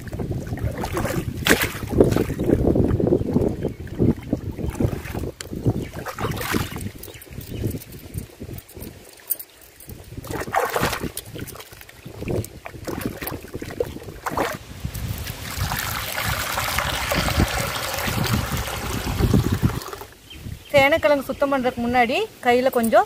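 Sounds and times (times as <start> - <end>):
water pouring into a clay pot: 0.0 - 7.1, 10.2 - 20.2
hands splashing in water: 0.5 - 2.6, 3.3 - 7.0, 10.2 - 20.1.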